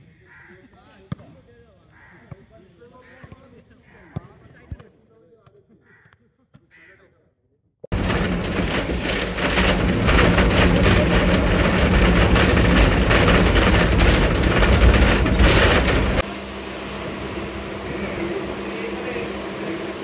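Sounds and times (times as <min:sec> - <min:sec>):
bus engine rumbling: 0:07.9 - 0:20.0
low hum: 0:07.9 - 0:20.0.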